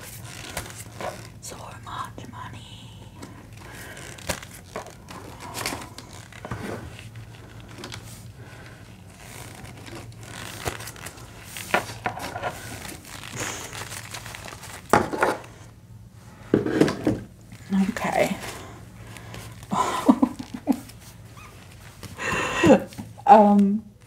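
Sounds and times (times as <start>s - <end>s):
banknotes crinkling and rustling: 0.0s - 1.4s, 3.5s - 15.6s, 17.7s - 23.1s.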